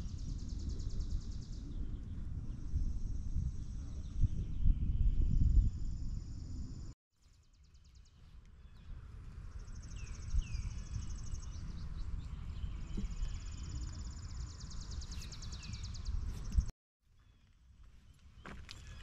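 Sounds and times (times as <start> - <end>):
bird chirps: 9.6 - 17.5.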